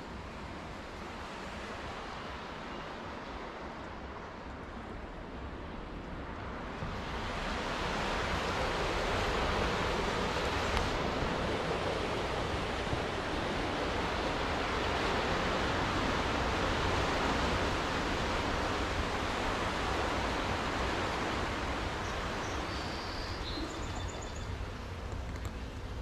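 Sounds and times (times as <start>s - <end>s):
ocean surf breaking: 6.5s - 23.8s.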